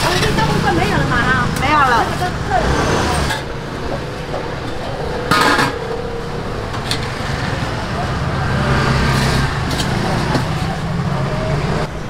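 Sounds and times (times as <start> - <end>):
background chatter: 0.0 - 12.0
metal lid clanking: 4.7 - 6.0.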